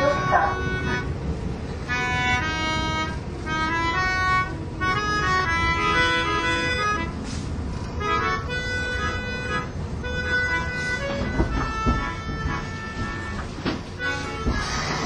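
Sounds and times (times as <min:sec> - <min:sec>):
subway train rumble: 0:00.0 - 0:15.0
melodica playing slow tune: 0:01.9 - 0:07.2, 0:08.0 - 0:13.4.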